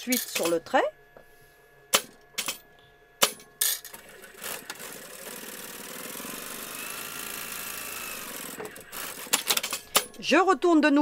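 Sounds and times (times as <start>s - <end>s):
sewing machine running: 3.8s - 10.2s.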